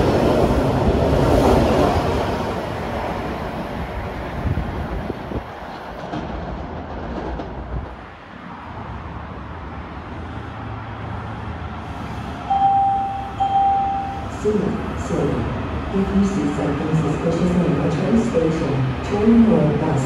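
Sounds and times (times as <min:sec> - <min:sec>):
train rumbling on rails: 0:00.0 - 0:20.0
steady high tone: 0:12.4 - 0:15.4.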